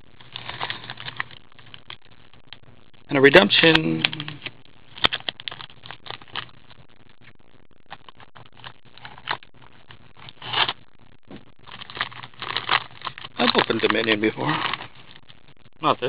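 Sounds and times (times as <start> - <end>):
plastic wrapper crinkling: 0.1 - 2.0, 3.5 - 6.7, 7.9 - 10.8, 11.6 - 15.4
wrapper rustling: 0.2 - 1.8, 11.6 - 15.3.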